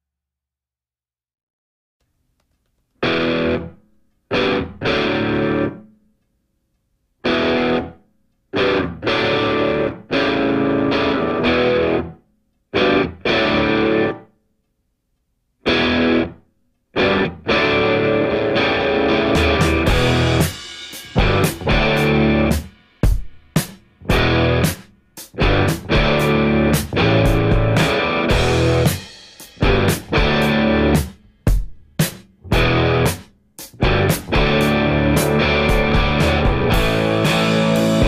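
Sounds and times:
distorted electric guitar chords: 3.0 - 5.8, 7.2 - 8.0, 8.6 - 12.2, 12.8 - 14.3, 15.6 - 16.4, 17.0 - 22.7, 24.0 - 31.2, 32.4 - 38.0.

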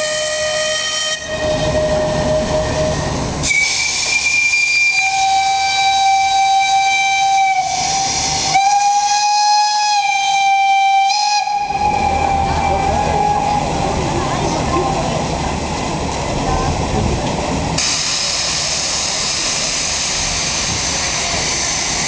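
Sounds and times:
mid-pitched steam whistle: 0.0 - 13.6
high steam whistle: 0.0 - 13.7, 17.8 - 22.0
low steam whistle: 0.0 - 13.8.

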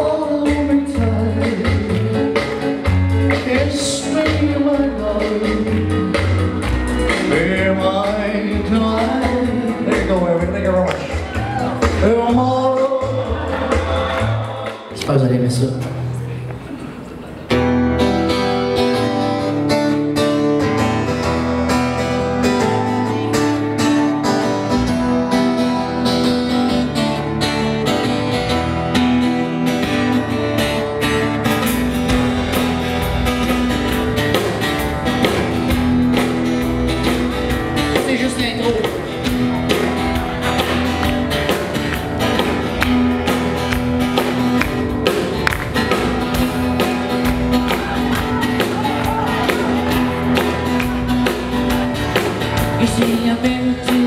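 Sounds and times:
drums: 0.0 - 54.0
live band playing: 0.0 - 54.0
second guitar: 0.0 - 54.0
strummed acoustic guitar: 16.8 - 54.0.

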